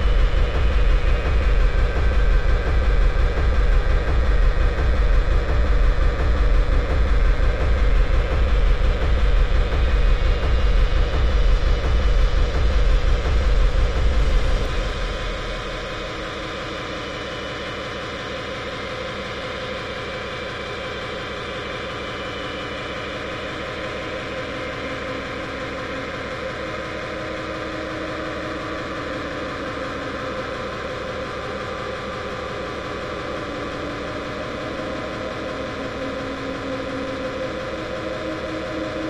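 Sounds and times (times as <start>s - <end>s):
heavy bass kick: 0.0s - 16.8s
distorted hardcore electronic music: 0.0s - 17.4s.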